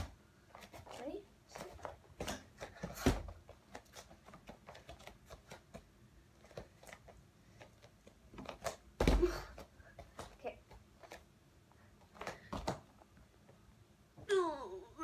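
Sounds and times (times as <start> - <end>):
bare feet tapping and creaking: 0.0 - 11.3, 12.0 - 13.6
heavy thuds landing on wooden floor: 9.0 - 9.5.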